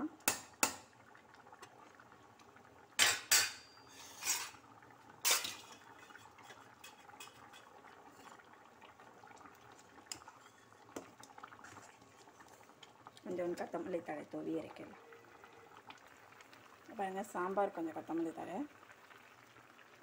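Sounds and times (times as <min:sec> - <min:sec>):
ladle clanking on metal pot: 0:03.0 - 0:04.6
stirring thick food: 0:09.4 - 0:13.2.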